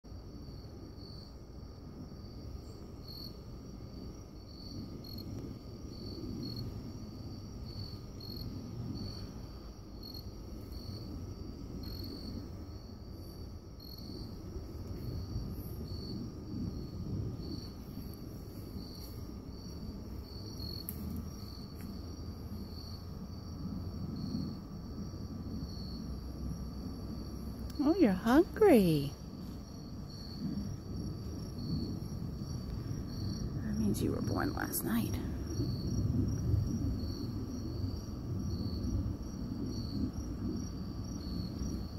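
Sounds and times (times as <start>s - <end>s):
crickets chirping: 0.0s - 41.9s
continuous low rumble: 0.1s - 41.9s.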